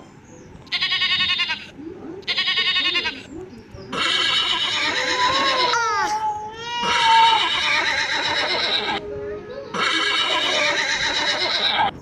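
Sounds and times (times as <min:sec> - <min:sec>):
goat bleating: 0:00.7 - 0:01.7, 0:02.3 - 0:03.3, 0:03.9 - 0:05.8, 0:06.8 - 0:09.0, 0:09.7 - 0:11.9
horse whinnying: 0:06.8 - 0:09.0, 0:09.7 - 0:11.9.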